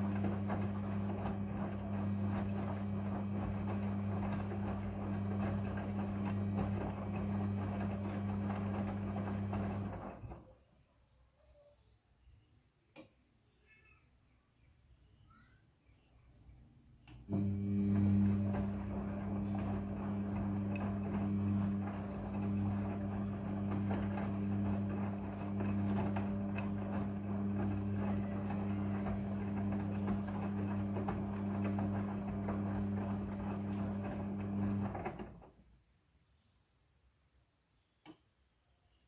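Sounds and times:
washing machine motor humming: 0.0 - 10.5, 17.0 - 35.6
click: 12.9 - 13.2, 17.0 - 17.3, 38.0 - 38.3.

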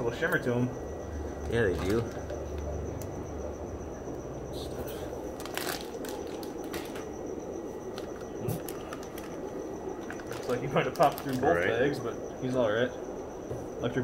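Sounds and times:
steady background hiss: 0.0 - 14.0
plastic bags rustling and crinkling: 5.3 - 7.1, 7.9 - 11.7.

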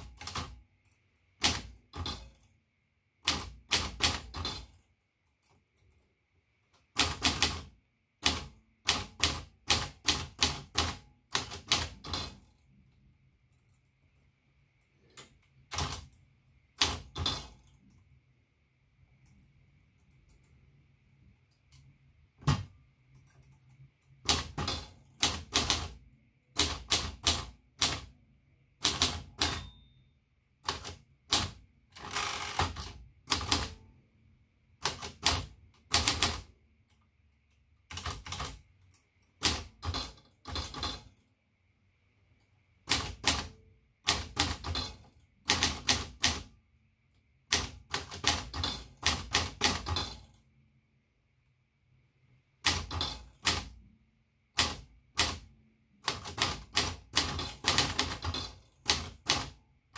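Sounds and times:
manual typewriter typing: 0.0 - 2.5, 3.2 - 6.0, 6.7 - 12.8, 15.2 - 17.8, 22.4 - 29.9, 30.5 - 33.9, 34.8 - 36.6, 37.8 - 41.2, 42.8 - 46.5, 47.5 - 50.3, 52.6 - 53.9, 54.5 - 59.6.

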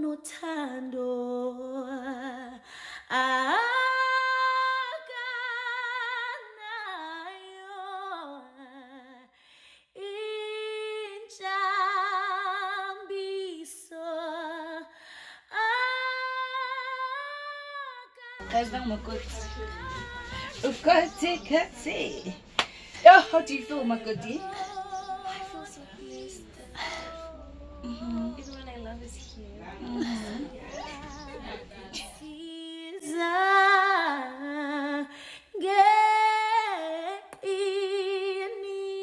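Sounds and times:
woman singing solo: 18.4 - 28.6.

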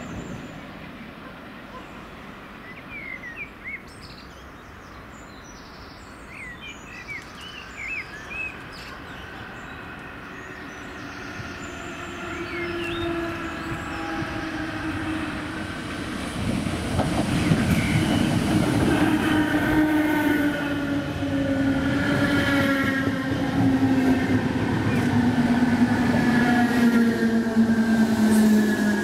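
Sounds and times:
train wheels rumbling on rails: 8.6 - 29.0.

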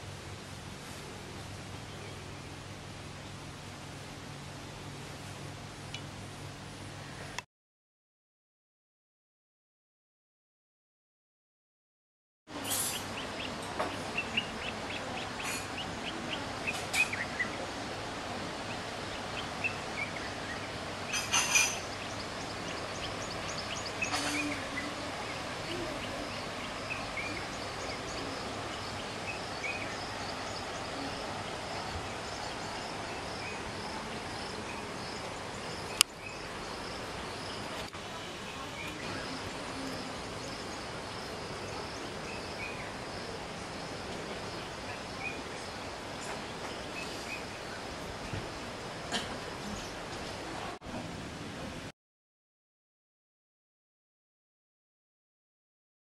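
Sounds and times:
birds chirping: 12.5 - 50.7.

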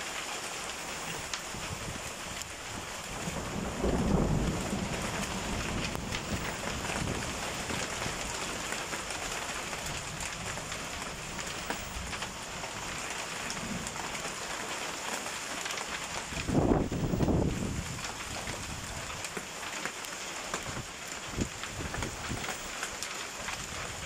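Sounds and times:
hail pattering: 0.0 - 24.0
thunder rumble: 1.0 - 14.3, 16.3 - 19.3.

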